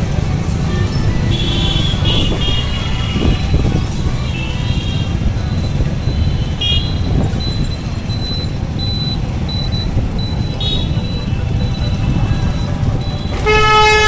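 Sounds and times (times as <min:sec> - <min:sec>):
road traffic rumble: 0:00.0 - 0:14.0
vehicle horns tooting: 0:01.2 - 0:05.2, 0:06.1 - 0:07.9, 0:10.4 - 0:14.0
short high beeps: 0:05.5 - 0:13.4.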